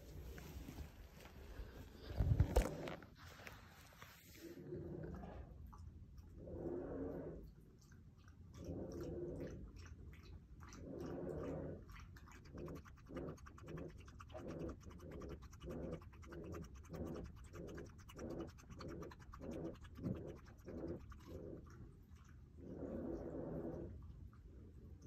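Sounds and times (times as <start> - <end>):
dog lapping from a bowl: 7.3 - 25.0.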